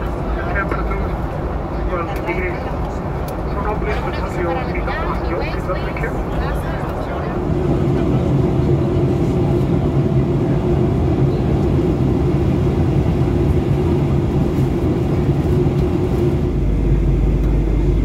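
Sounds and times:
airplane cabin engine drone: 0.0 - 18.0
deep rumble: 0.0 - 18.0
steady low tones: 4.6 - 18.0.

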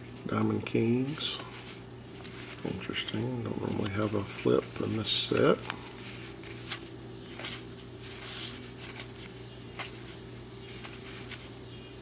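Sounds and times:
steady low hum: 0.0 - 12.0
cards sliding and flicking: 3.6 - 11.6.

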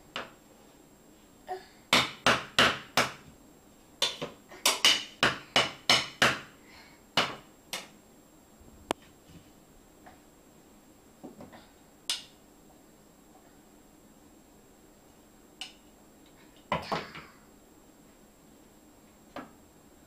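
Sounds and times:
wooden spatula knocking on tiles: 4.0 - 6.5, 7.2 - 7.9.

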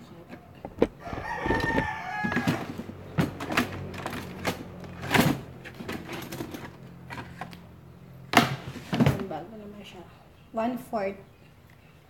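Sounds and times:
knocks and handling clatter: 0.2 - 7.6
rooster crowing: 0.8 - 3.0.

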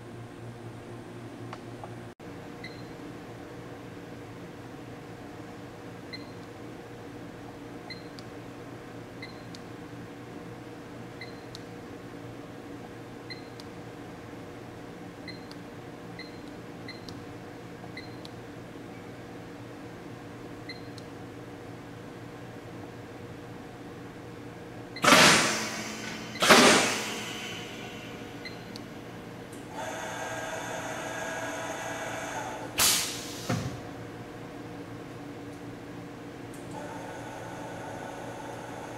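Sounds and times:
steady hum: 0.0 - 38.9
short loud burst of noise: 25.0 - 28.2
welder carriage motor whine: 25.0 - 33.4, 36.7 - 38.9.

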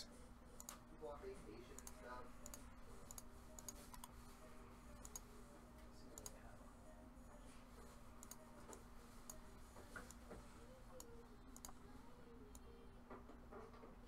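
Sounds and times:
low steady hum: 0.0 - 14.0
computer clicks: 0.6 - 0.8, 1.7 - 4.2, 5.0 - 5.3, 6.1 - 6.4, 8.2 - 10.3, 10.9 - 11.8, 12.5 - 12.7.

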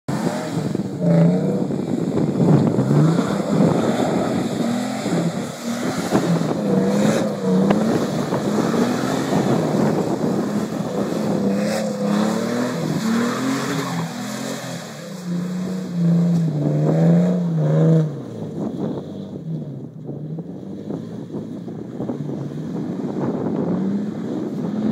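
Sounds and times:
truck engine revving: 0.1 - 19.0.

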